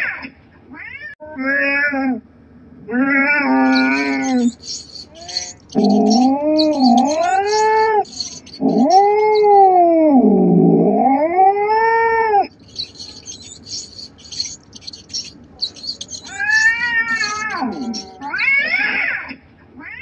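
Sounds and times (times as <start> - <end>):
cat yowling: 3.2 - 9.8, 12.7 - 18.8
rapid high-pitched chirping: 3.6 - 9.8, 12.5 - 18.6.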